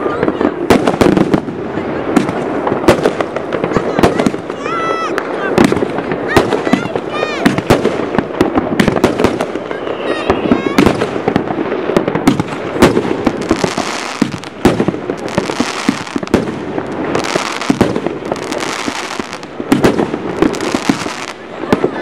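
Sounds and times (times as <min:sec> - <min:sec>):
fireworks bangs and crackles: 0:00.0 - 0:22.0
hissing crackle: 0:00.0 - 0:22.0
firework whistling glide: 0:08.8 - 0:11.4.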